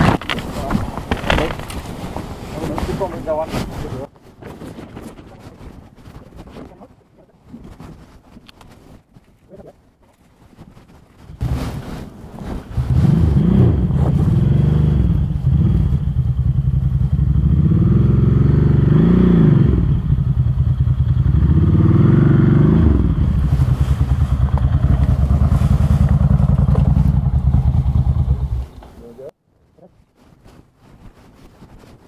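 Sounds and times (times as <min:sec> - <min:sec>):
motorcycle engines revving: 0:12.6 - 0:29.0.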